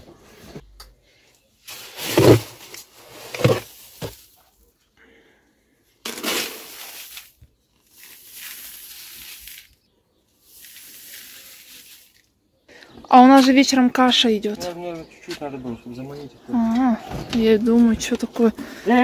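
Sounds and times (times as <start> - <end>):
plastic scoop digging into grain feed: 1.7 - 4.4, 6.0 - 9.8, 10.4 - 12.2.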